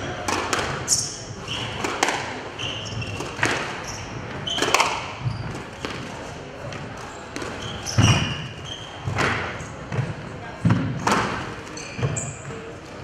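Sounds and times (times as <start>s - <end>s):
shoes squeaking on wooden floor: 0.0s - 6.2s, 7.0s - 10.0s, 11.7s - 12.6s.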